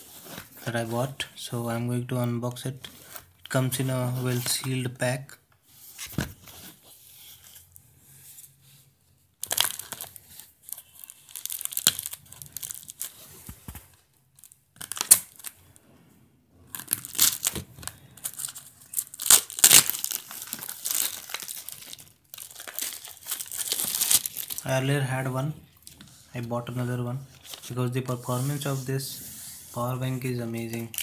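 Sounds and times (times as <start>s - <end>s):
plastic shrink wrap crinkling: 9.4s - 15.6s, 16.7s - 25.0s, 30.2s - 31.0s.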